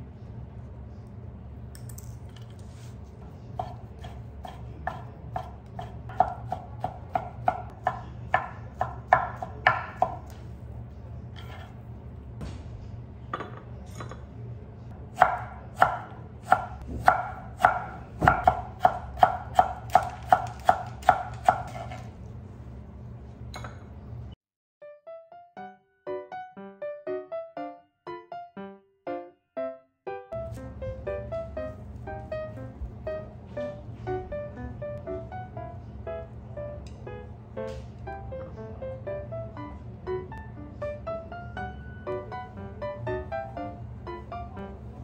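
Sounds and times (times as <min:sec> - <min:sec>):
low steady hum: 0:00.0 - 0:24.4, 0:30.4 - 0:45.0
knife tapping on wooden board: 0:03.6 - 0:10.2.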